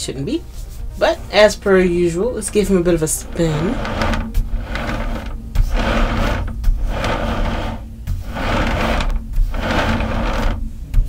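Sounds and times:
turntable motor whirring: 3.2s - 10.6s.

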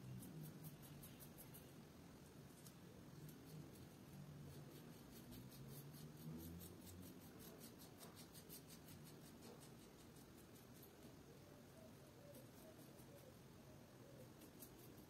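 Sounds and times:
razor scraping stubble: 2.5s - 11.1s, 14.3s - 15.0s.

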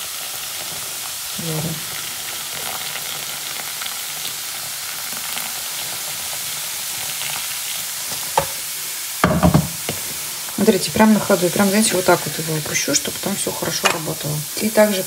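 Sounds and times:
cleaner fizzing and hissing: 0.0s - 15.0s
loud knock: 9.2s - 9.8s.

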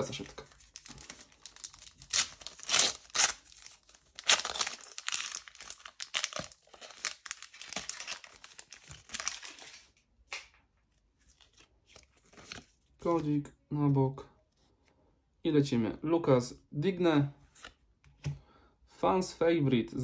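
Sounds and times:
cards rustling: 0.0s - 13.3s
foil wrapper crackling and ripping: 0.7s - 9.9s.

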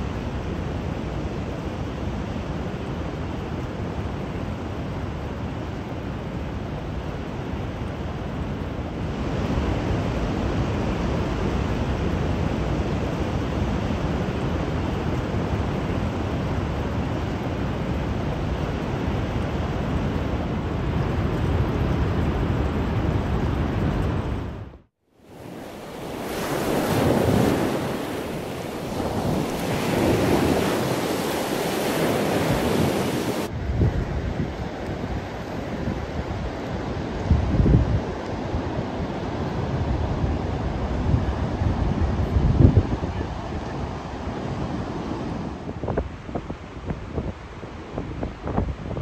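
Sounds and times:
wind buffeting microphone: 18.0s - 49.0s
heavy surf breaking: 25.3s - 33.6s.

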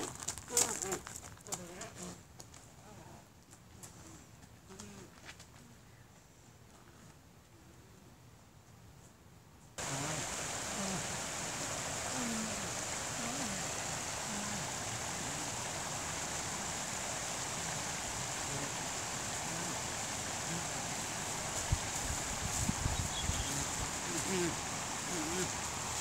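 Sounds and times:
stream rushing over small falls: 9.8s - 26.0s.

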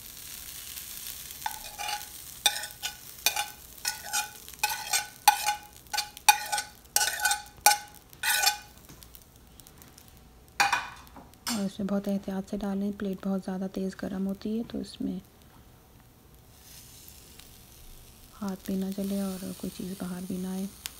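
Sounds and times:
hot plate hissing: 0.0s - 11.8s, 16.4s - 20.9s
metal spoon scraping plate: 1.4s - 8.7s.

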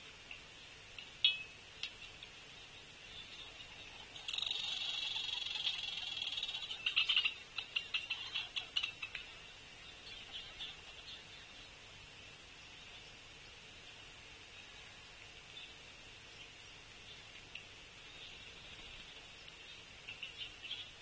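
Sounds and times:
faint high hum: 0.0s - 21.0s
buzzy animal trill: 4.0s - 8.9s
sharp animal chips and clicks: 4.1s - 9.3s.

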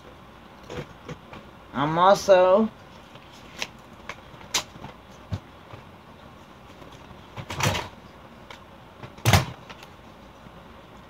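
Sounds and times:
envelope and card rustling: 2.9s - 5.2s.

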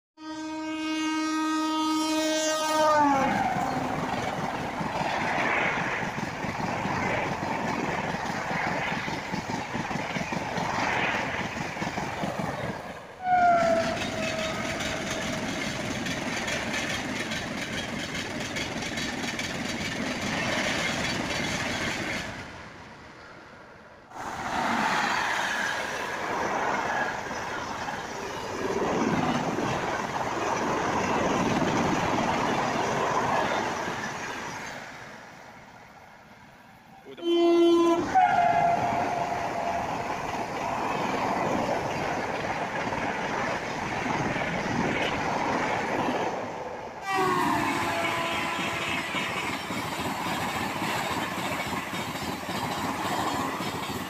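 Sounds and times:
locomotive horn: 0.2s - 3.9s, 13.2s - 15.1s, 37.1s - 40.0s, 47.0s - 49.4s
train rushing past on rails: 0.2s - 54.0s.

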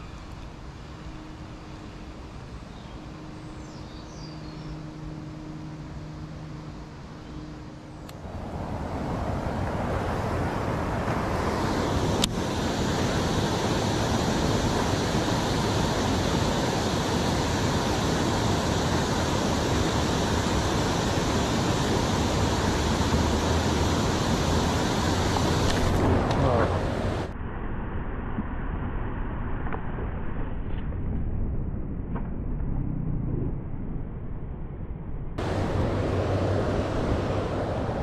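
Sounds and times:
water rushing over weir: 8.1s - 27.3s, 35.4s - 38.0s.

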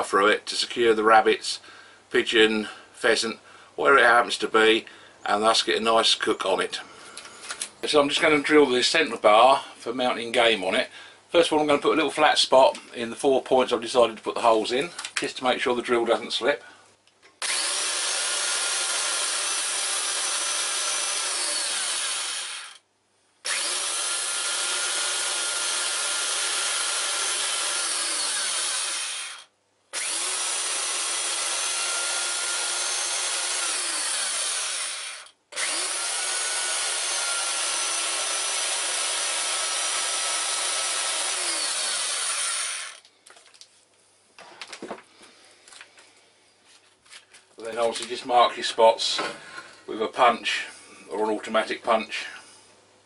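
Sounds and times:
belt sander grinding metal: 17.4s - 22.8s, 23.5s - 29.4s, 30.0s - 43.0s.

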